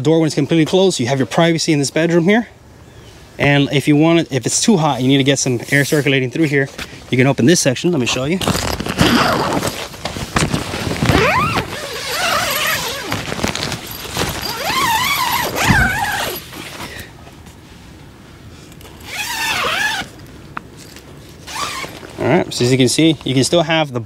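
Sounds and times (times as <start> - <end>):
nylon fabric rustling: 8.1 - 17.0, 19.0 - 20.2, 20.8 - 22.3
tent zipper opening: 8.4 - 16.9, 18.8 - 20.2, 21.4 - 22.2.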